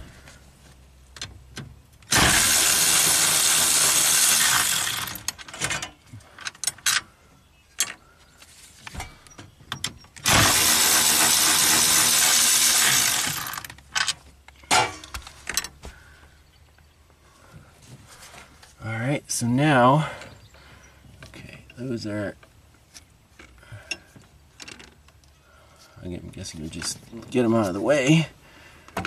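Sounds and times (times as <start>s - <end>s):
cordless power tool running: 2.1s - 5.4s, 10.2s - 13.7s.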